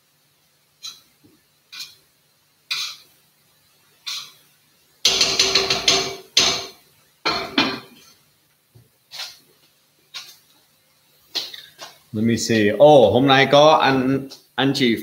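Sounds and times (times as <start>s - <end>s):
kitchen counter knocks and bangs: 5.1s - 7.9s.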